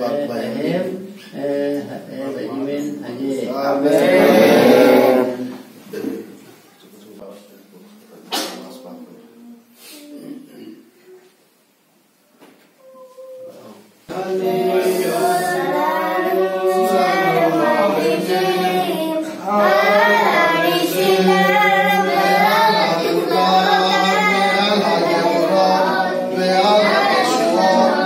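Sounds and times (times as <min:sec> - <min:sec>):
men and boys singing together: 0:03.7 - 0:05.8, 0:14.1 - 0:28.0.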